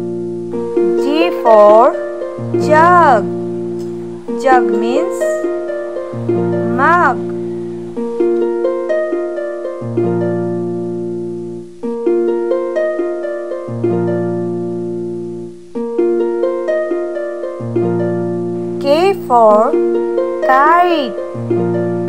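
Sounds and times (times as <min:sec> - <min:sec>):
low bass notes: 0:00.0 - 0:08.9, 0:17.6 - 0:22.0
plucked string melody: 0:00.0 - 0:22.0.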